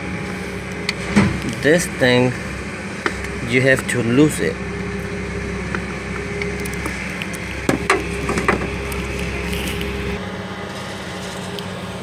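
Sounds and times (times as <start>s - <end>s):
low mechanical hum: 0.0s - 12.0s
sharp clicks and knocks: 5.7s - 10.0s.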